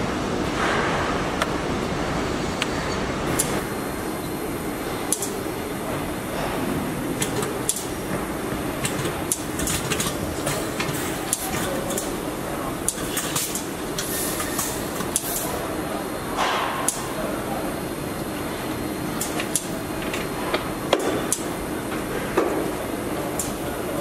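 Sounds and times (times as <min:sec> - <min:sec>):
machinery hum: 0:00.0 - 0:24.0.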